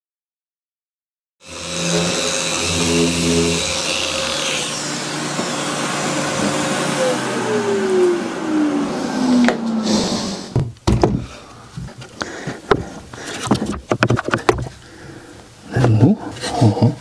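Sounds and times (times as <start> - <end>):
orbital sander winding down: 1.4 - 10.5
wooden knocks and clacks: 10.6 - 14.8.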